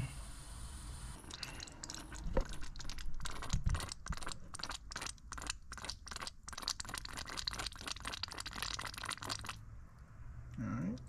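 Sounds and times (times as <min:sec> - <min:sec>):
coolant and air sputtering: 0:01.2 - 0:09.6.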